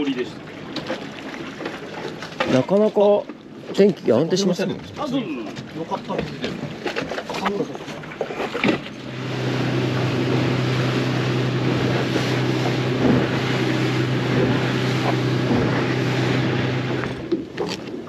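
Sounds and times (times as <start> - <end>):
water rushing past hull: 0.0 - 18.0
boat engine running: 5.6 - 18.0
wind on microphone: 9.1 - 17.4.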